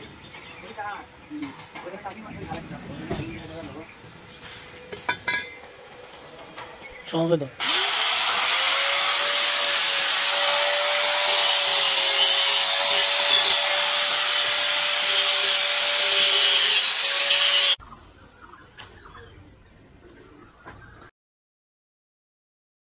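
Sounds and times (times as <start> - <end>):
angle grinder grinding metal: 7.6 - 17.8.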